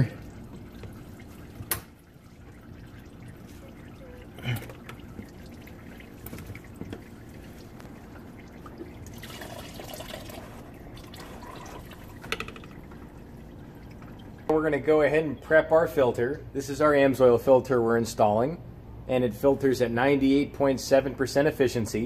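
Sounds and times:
oil dripping into metal bucket: 0:00.0 - 0:15.5.

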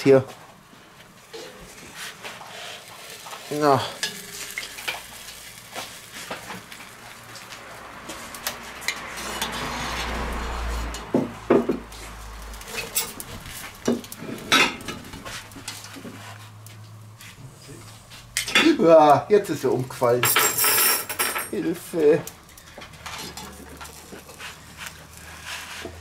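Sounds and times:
tongs scraping cast iron pot: 0:01.3 - 0:06.6, 0:11.9 - 0:18.8, 0:22.4 - 0:26.0.

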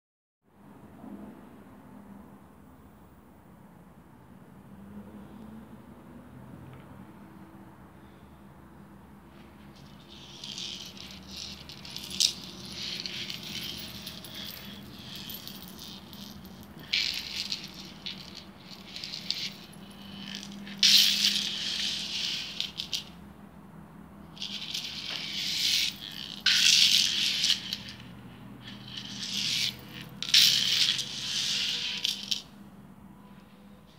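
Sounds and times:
metal charms jingling: 0:09.8 - 0:23.1, 0:24.4 - 0:32.5.

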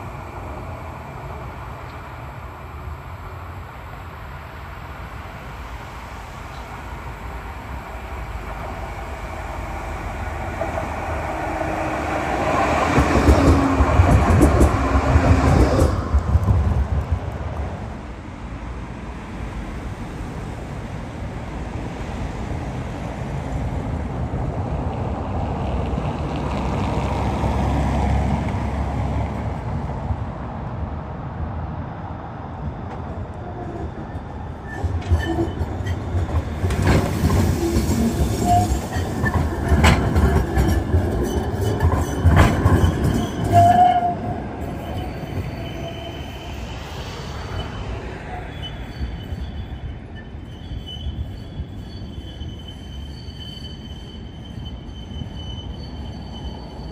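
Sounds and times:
tram rumble: 0:00.0 - 0:56.9
wheel squeals: 0:33.4 - 0:56.9.

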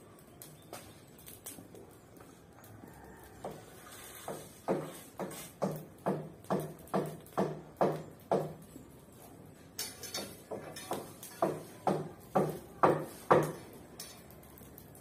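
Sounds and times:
broom sweeping dirt ground: 0:03.6 - 0:06.0, 0:09.2 - 0:13.8.

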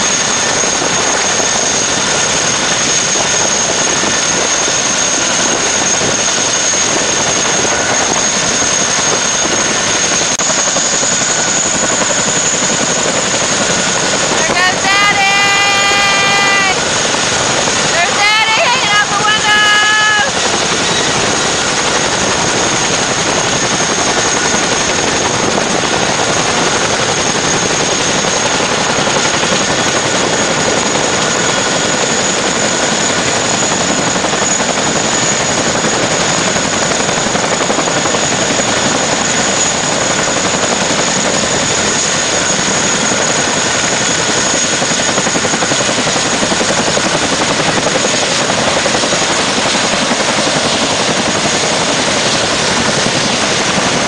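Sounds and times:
helicopter rotors and engines: 0:00.0 - 0:54.0
high turbine whine: 0:00.0 - 0:54.0.

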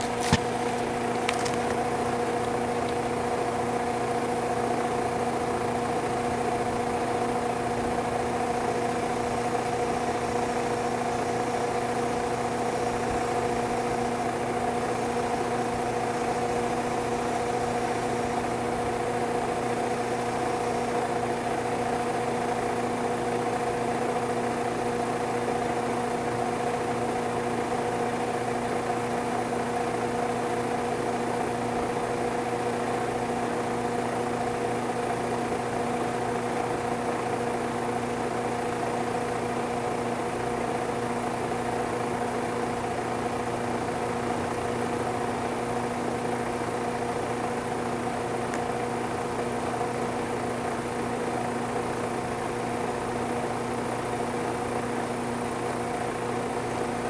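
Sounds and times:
motor humming: 0:00.0 - 0:23.0.

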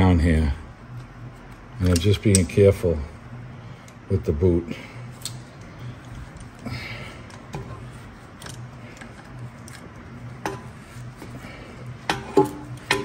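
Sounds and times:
steady low hum: 0:00.0 - 0:13.0
pliers clicking on metal: 0:01.8 - 0:02.6.

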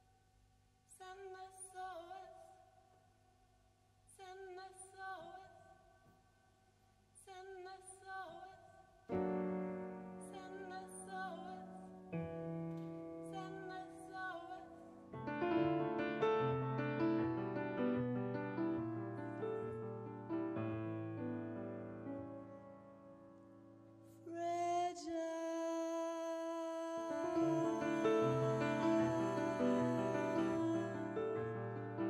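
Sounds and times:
woman singing: 0:00.9 - 0:02.6, 0:04.1 - 0:05.9, 0:07.2 - 0:09.4, 0:10.1 - 0:12.2, 0:13.2 - 0:15.1, 0:24.1 - 0:32.0
sustained piano chords: 0:27.1 - 0:32.0.

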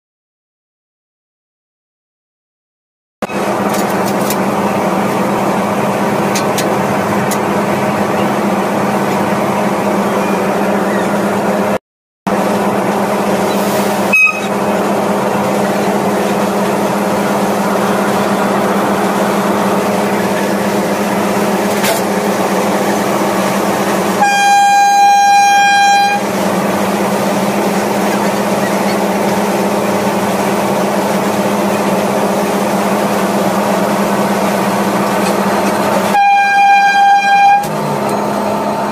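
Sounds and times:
electric locomotive droning: 0:03.2 - 0:38.9
train horn: 0:14.0 - 0:14.6, 0:24.1 - 0:26.3, 0:36.1 - 0:37.8.

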